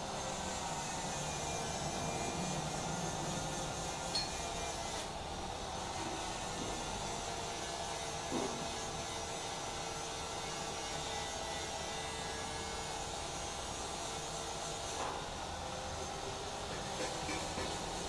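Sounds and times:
steady machine hum: 0.0s - 6.2s.

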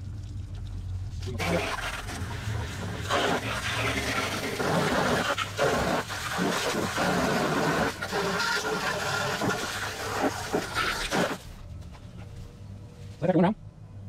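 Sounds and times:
hose spray on metal cabinet: 1.4s - 11.4s.

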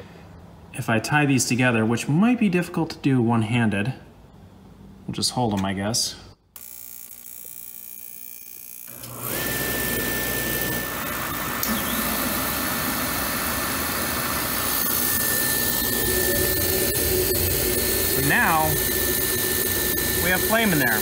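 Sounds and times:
heater burner rushing: 8.9s - 21.0s
high whine: 8.9s - 21.0s.

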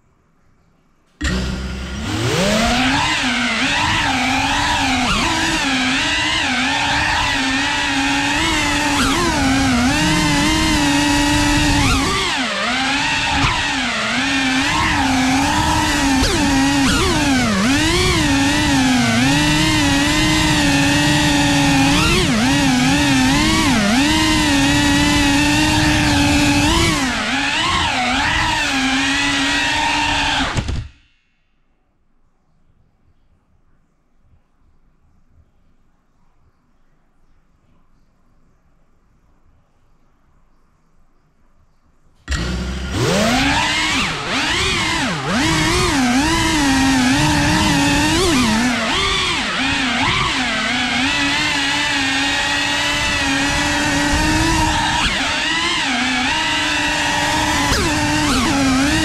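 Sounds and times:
drone motors whining: 1.2s - 31.0s, 42.3s - 59.0s.

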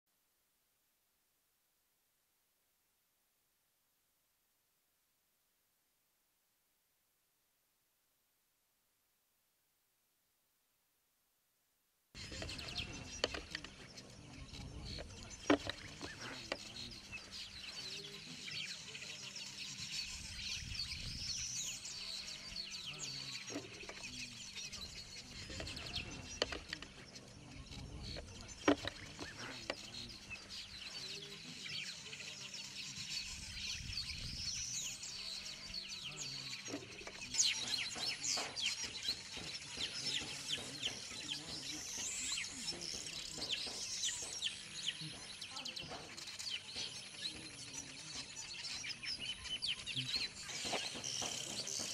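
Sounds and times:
many birds chirping: 12.2s - 51.9s.

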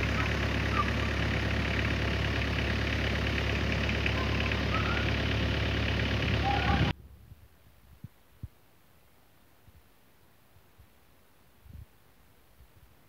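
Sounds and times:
vehicle engine idling: 0.0s - 7.0s.

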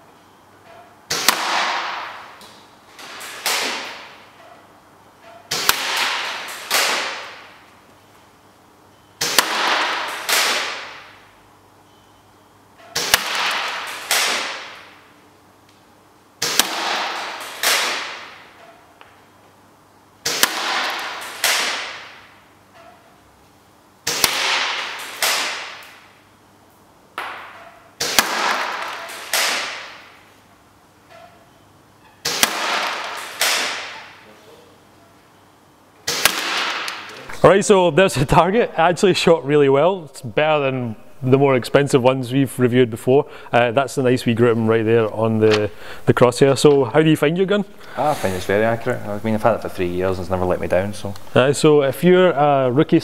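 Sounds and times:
sharp swishing cracks: 3.0s - 4.2s, 5.5s - 7.5s, 9.2s - 11.1s, 13.0s - 15.0s, 16.4s - 18.5s, 20.2s - 22.2s, 24.0s - 26.0s, 28.0s - 30.2s, 32.2s - 34.2s, 36.1s - 37.1s.

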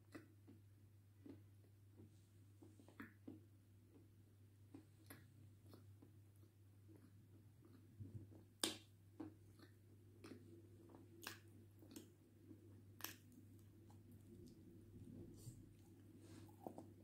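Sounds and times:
wet mouth and lip sounds: 4.7s - 17.0s.

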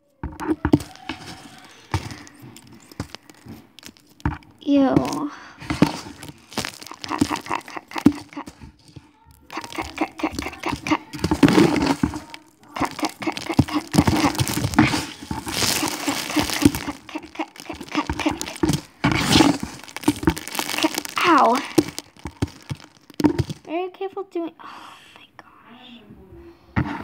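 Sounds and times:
foam being cut and pulled apart: 9.5s - 23.5s.

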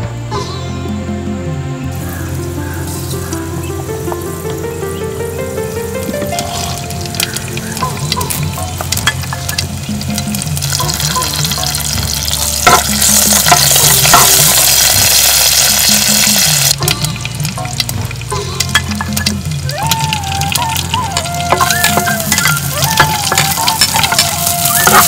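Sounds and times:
soft background music: 0.0s - 25.0s
leaves sizzling in hot oil: 1.9s - 25.0s
spoon knocking clay pot: 6.1s - 15.3s, 20.6s - 25.0s.

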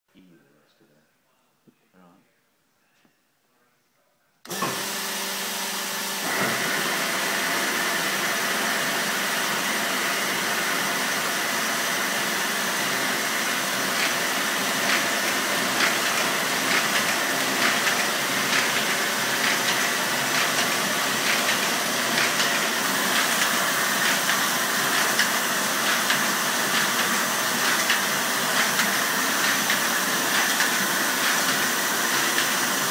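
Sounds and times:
paper folding machine running: 4.5s - 32.9s.

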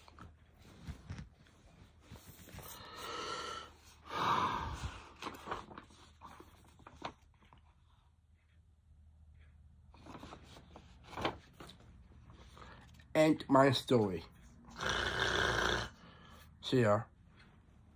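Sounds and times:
small knocks and rustles: 0.0s - 2.6s
heavy breathing close up: 2.2s - 5.4s, 14.7s - 16.6s.

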